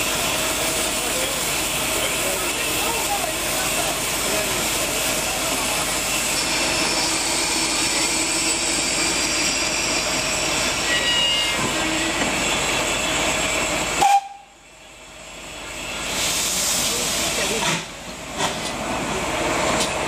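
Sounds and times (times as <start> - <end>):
locomotive steam hissing: 0.0 - 20.0.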